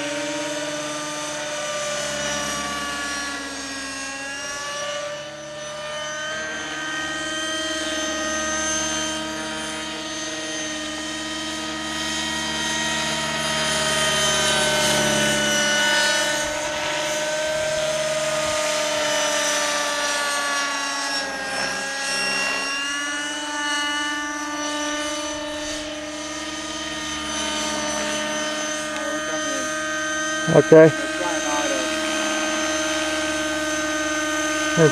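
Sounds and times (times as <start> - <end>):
rc helicopter engine whining: 0.0 - 34.9.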